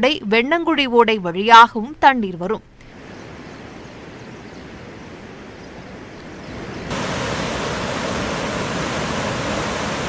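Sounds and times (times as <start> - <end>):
floodwater rushing through gates: 6.9 - 10.0.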